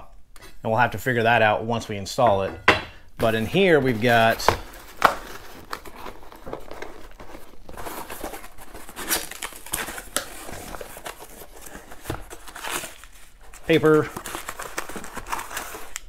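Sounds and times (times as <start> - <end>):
paper packing crinkling: 3.2 - 16.0.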